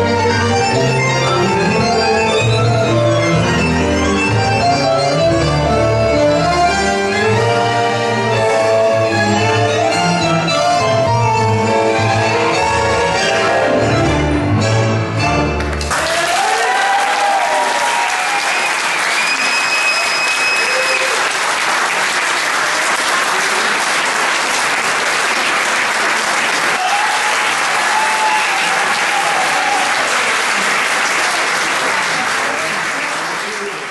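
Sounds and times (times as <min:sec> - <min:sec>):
audience applauding: 0:15.6 - 0:33.9
high whistle: 0:18.4 - 0:21.2.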